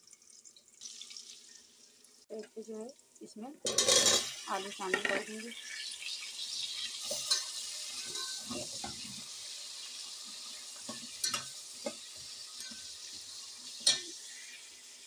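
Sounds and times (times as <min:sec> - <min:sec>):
potatoes sizzling in oil: 0:00.0 - 0:15.0
spoon clinking against metal pot: 0:07.1 - 0:08.6, 0:10.9 - 0:11.5, 0:13.8 - 0:14.1.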